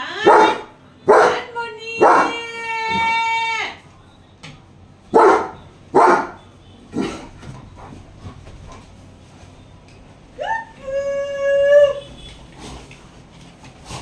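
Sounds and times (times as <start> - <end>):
dog barking: 0.2 - 2.4, 5.1 - 6.4
dog whining: 10.4 - 12.2.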